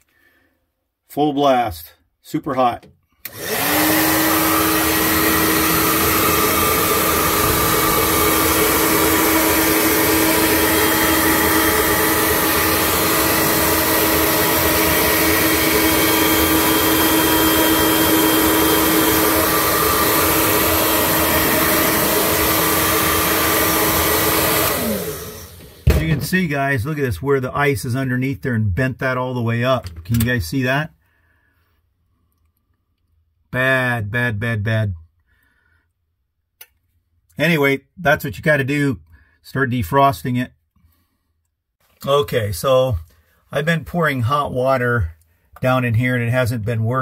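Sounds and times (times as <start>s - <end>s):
hair dryer blowing with fan whine: 3.2s - 26.3s.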